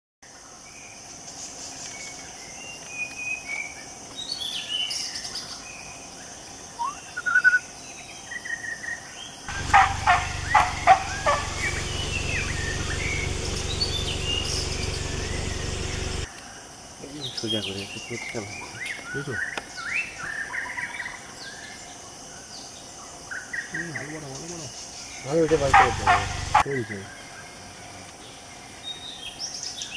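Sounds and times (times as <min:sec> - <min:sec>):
high insect drone: 0:00.3 - 0:29.9
birds chirping and whistling: 0:06.8 - 0:08.7, 0:09.5 - 0:16.3, 0:23.6 - 0:26.7
loud sharp bird notes: 0:09.5 - 0:16.3, 0:25.2 - 0:26.7
low steady hum: 0:09.5 - 0:16.3.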